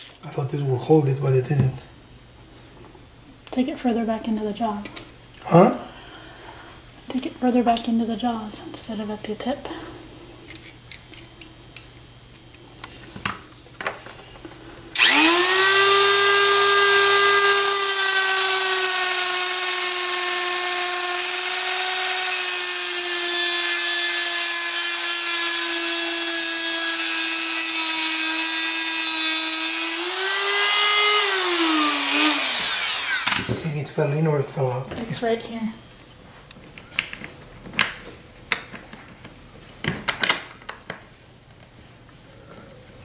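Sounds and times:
rotary tool grinding metal: 15.0s - 33.6s.

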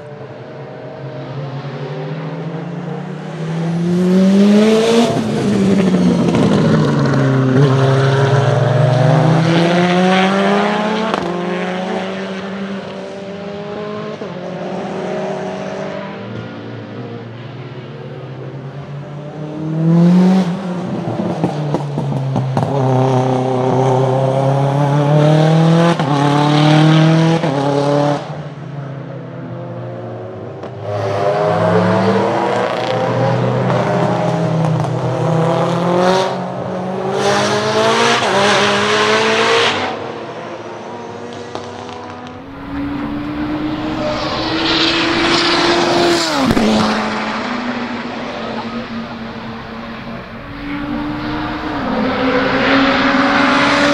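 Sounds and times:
race car engine accelerating: 41.4s - 53.9s.

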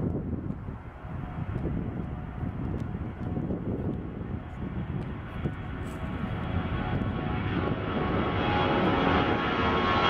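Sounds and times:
jet engines deep rumble: 0.0s - 10.0s
jet engine whine and hiss: 4.2s - 10.0s.

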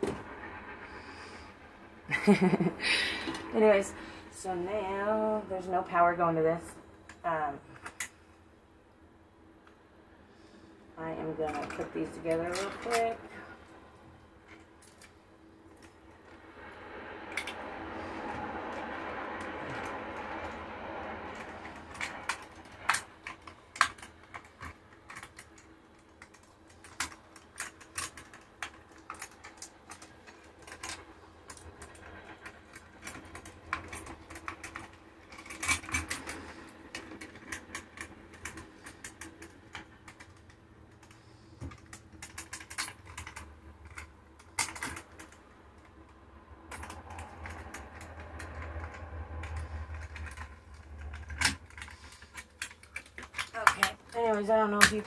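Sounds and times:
small clicks taps and rustles: 21.3s - 55.0s.

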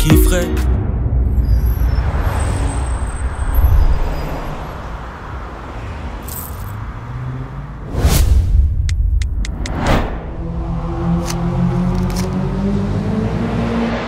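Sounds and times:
vehicle passing close: 0.7s - 14.0s
passing cars and motorbikes: 0.9s - 8.1s, 9.5s - 14.0s.

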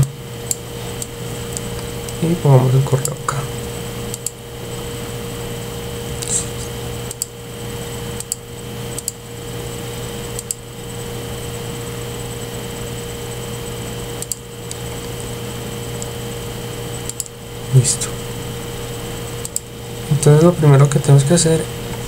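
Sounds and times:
steady background hum: 0.0s - 22.0s
computer mouse clicking: 4.1s - 4.4s, 7.1s - 7.4s, 8.2s - 9.2s, 10.3s - 10.6s, 14.2s - 14.9s, 17.0s - 17.3s, 19.4s - 19.7s.

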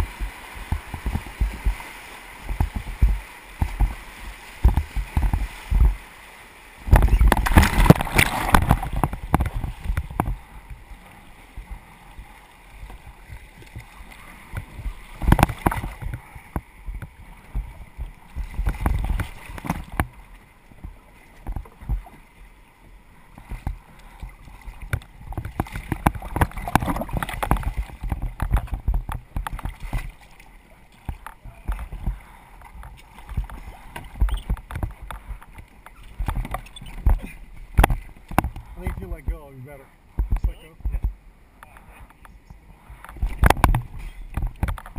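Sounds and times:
paddle splashes: 0.0s - 44.9s
rushing whitewater: 0.0s - 44.9s
knocks on plastic hull: 40.2s - 41.2s.

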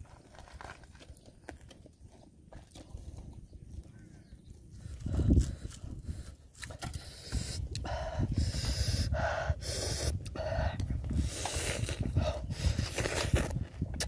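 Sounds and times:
open-mouth crunchy chewing: 0.0s - 9.0s, 9.7s - 14.0s
heavy panting breaths: 4.8s - 13.0s.

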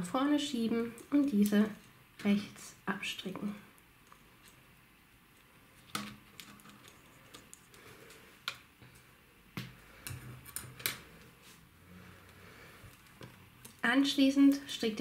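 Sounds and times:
knitting needles clicking: 0.9s - 2.0s.

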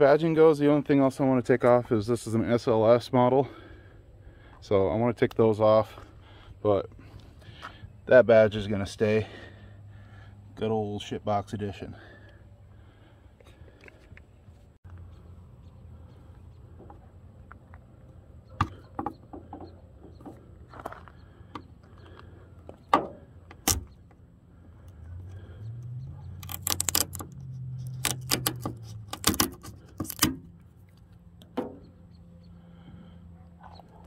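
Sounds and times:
sharp clicks and snaps: 24.8s - 31.5s
plastic emblem scraping off metal: 26.4s - 30.5s.

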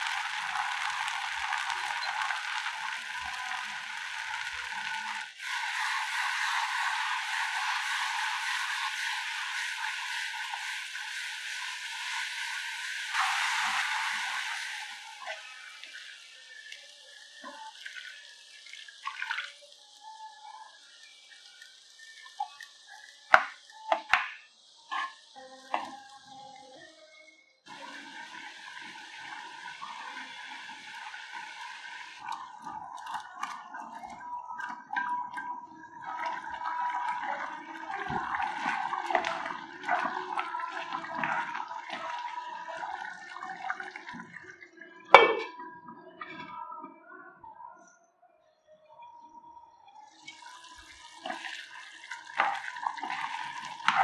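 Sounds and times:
gravy bubbling in a pan: 0.0s - 26.4s, 27.7s - 45.3s, 50.1s - 54.0s
wet sloshing and stirring: 32.2s - 44.4s, 50.3s - 54.0s.

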